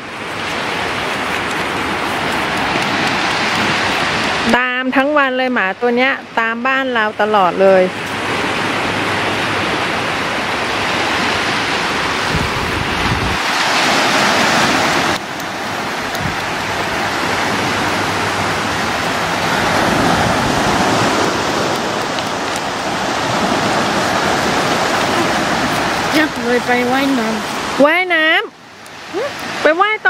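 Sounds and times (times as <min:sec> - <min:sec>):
surf washing onto sandy beach: 0:00.0 - 0:05.4, 0:07.2 - 0:30.0
wind buffeting microphone: 0:07.3 - 0:29.7.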